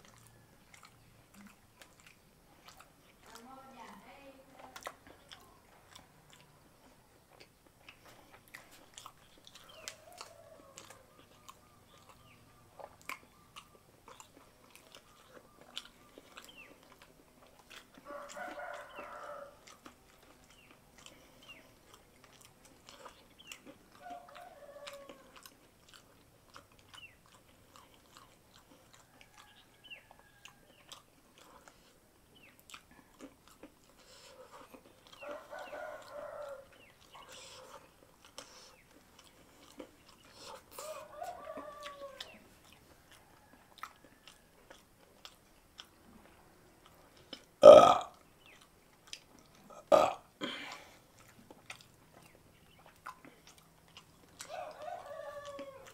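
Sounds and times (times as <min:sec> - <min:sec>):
close chewing and mouth clicks: 0:00.0 - 0:55.9
chicken calling: 0:22.9 - 0:25.5, 0:35.0 - 0:37.8, 0:39.6 - 0:42.8, 0:54.4 - 0:55.9.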